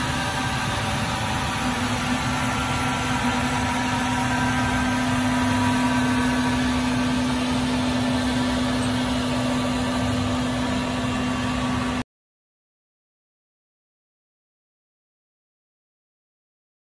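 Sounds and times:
floor scrubber humming: 0.0s - 12.0s.

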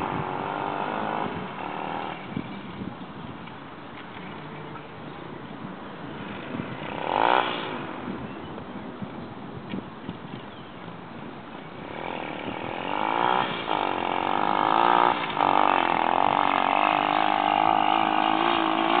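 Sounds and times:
dirt bike engine revving hard: 0.0s - 2.5s, 6.2s - 8.2s, 11.7s - 19.0s.

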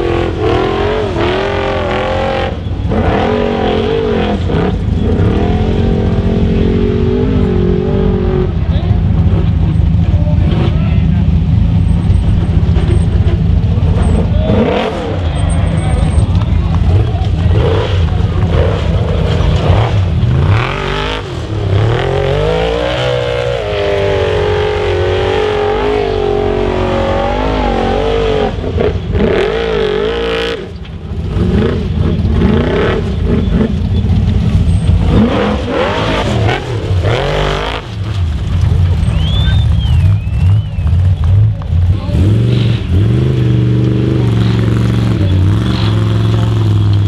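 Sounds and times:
buggy engine revving hard: 0.0s - 47.0s
tyres spinning in sand: 30.7s - 47.0s.

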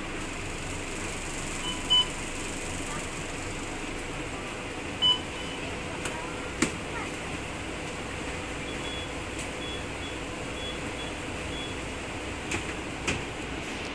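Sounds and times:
diesel bus idling hum: 0.0s - 13.9s.

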